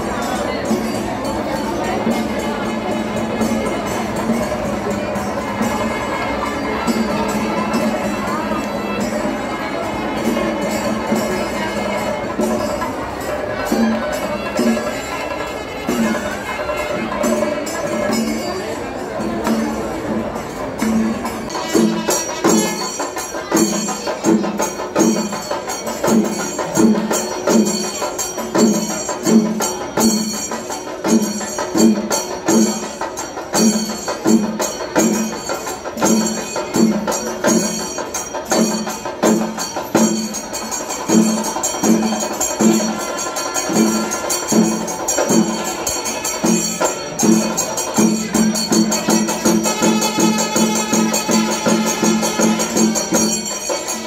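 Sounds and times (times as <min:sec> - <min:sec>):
jingling cymbal-like clatter: 0:00.0 - 0:54.0
steady drum beats: 0:19.2 - 0:54.0.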